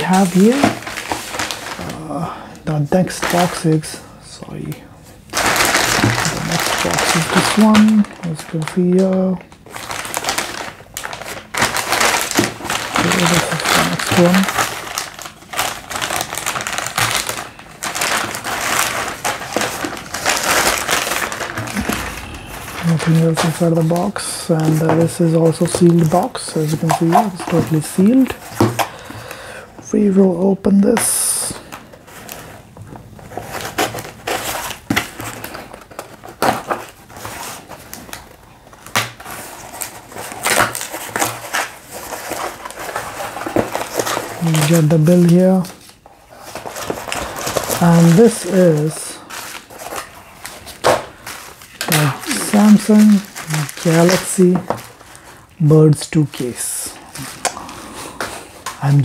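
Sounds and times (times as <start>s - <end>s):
tape and cardboard rustling: 0.0s - 2.0s, 5.3s - 29.0s, 32.1s - 55.5s
knife slitting plastic bag: 0.0s - 2.1s, 5.4s - 28.4s, 38.9s - 55.3s
plastic bag crinkling: 0.0s - 59.0s.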